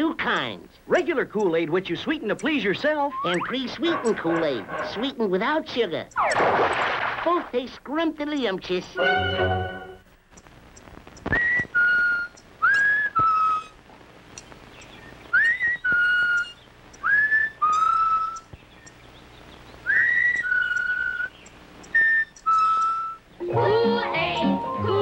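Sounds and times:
person whistling a tune: 0:11.4 - 0:13.7.

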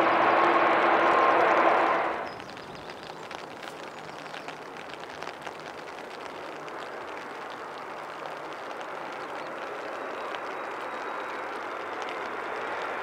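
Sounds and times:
jet engines rushing: 0:00.0 - 0:02.3.

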